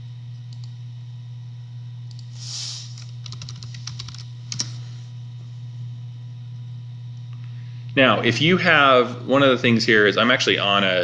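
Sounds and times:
steady low hum: 0.0 - 11.0
typing on computer keyboard: 3.2 - 4.7.

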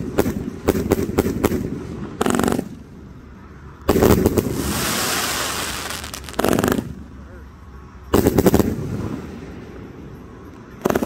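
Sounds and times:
firework cake firing sharp bangs: 0.0 - 2.7, 3.9 - 7.0
dense rattle of firework shots: 0.0 - 2.9, 3.9 - 7.1, 8.1 - 9.6, 10.8 - 11.0.

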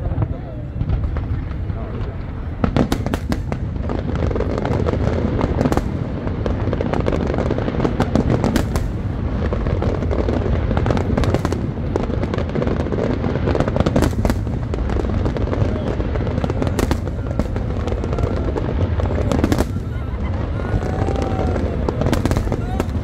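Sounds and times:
fireworks bangs and pops: 0.0 - 23.0.

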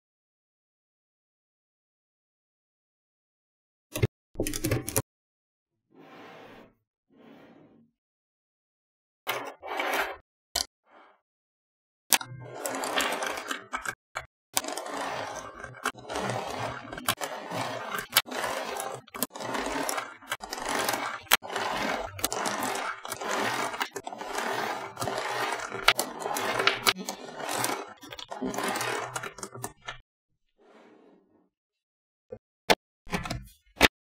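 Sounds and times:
magnetic balls rattling and scraping: 12.2 - 30.0.

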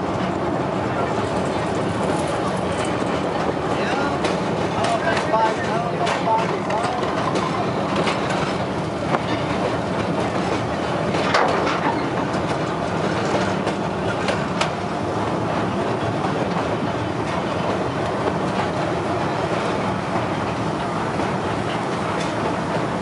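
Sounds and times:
train wheels rumbling on rails: 0.0 - 23.0
wheels clicking over rail joints: 1.5 - 14.8.

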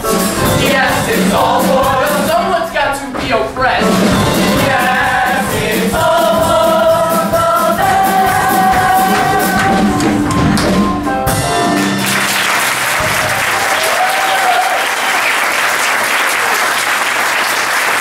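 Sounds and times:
musical theatre song: 0.0 - 18.0
audience applause: 11.8 - 18.0.

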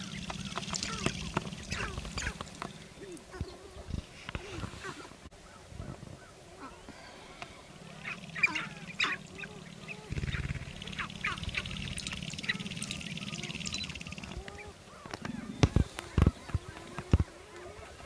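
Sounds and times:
grouse calls: 0.0 - 18.0
low rapid rattling buzz: 7.9 - 14.5.

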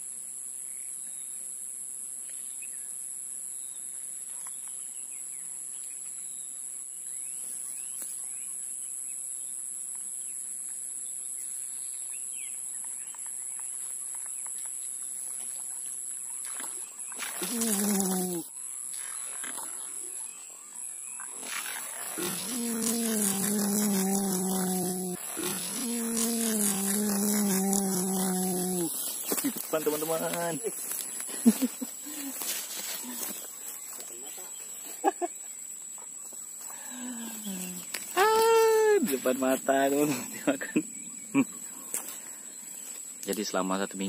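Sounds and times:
insects droning: 0.0 - 44.0.

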